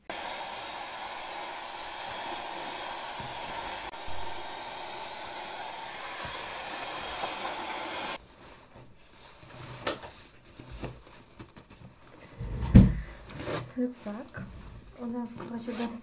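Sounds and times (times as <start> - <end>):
hair dryer blowing: 0.0 - 8.2.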